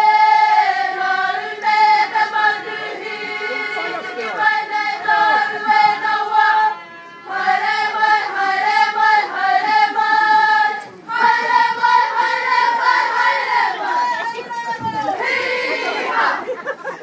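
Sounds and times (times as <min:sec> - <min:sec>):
group of voices singing: 0:00.0 - 0:16.6.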